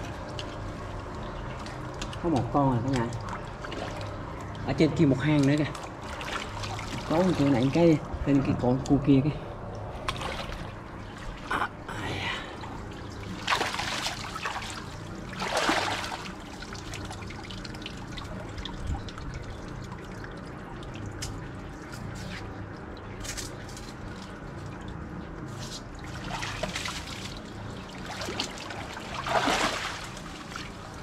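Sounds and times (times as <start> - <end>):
muddy water sloshing: 0.0 - 31.0
water splash: 10.1 - 11.5, 13.4 - 17.4, 28.0 - 30.8.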